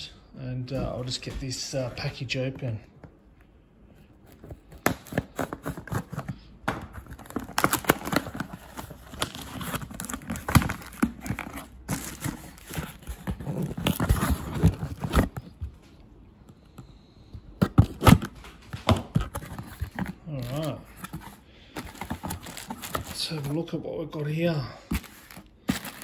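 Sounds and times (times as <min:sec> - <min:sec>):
packing crinkling rustles: 0:04.0 - 0:16.0, 0:17.6 - 0:23.7, 0:24.8 - 0:26.0
cardboard box being handled: 0:06.9 - 0:15.8, 0:18.9 - 0:23.6, 0:24.9 - 0:26.0.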